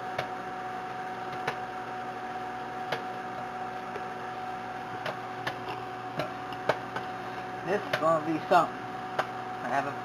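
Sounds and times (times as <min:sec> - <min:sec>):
popcorn popping: 0:00.0 - 0:02.0, 0:02.7 - 0:08.5
microwave oven humming: 0:00.0 - 0:10.0.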